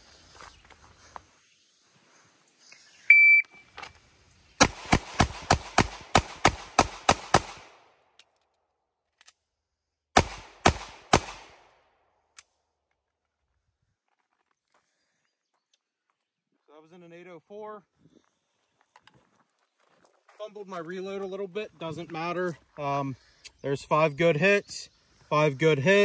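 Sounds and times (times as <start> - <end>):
shot timer beep: 3.1 - 3.6
pistol shots: 4.6 - 7.9, 10.2 - 11.8.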